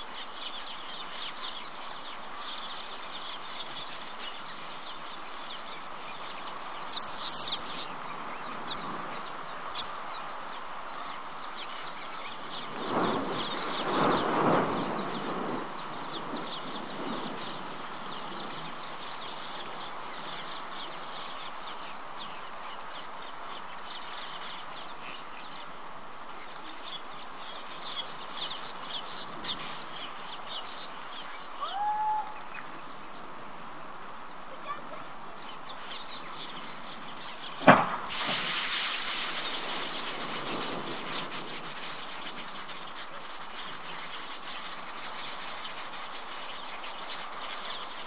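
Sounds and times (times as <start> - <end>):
birds chirping: 0.0 - 48.0
gliding bird call: 31.6 - 32.6.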